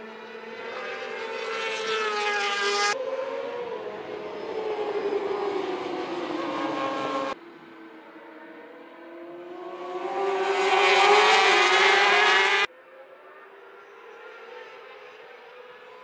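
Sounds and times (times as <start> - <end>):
racing motorcycles at high revs: 8.6 - 12.7.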